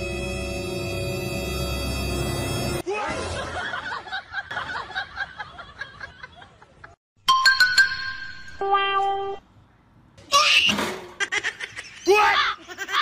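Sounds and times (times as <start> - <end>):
eerie background music: 0.0 - 2.8.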